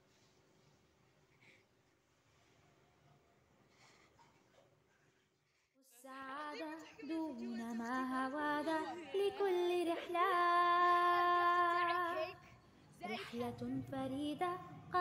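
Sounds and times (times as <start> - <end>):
woman singing unaccompanied: 5.8 - 15.0.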